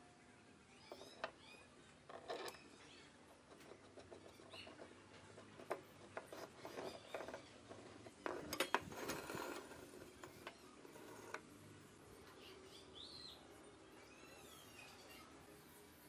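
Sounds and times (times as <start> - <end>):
metal square scraping on wood: 2.0 - 2.7, 3.5 - 11.5.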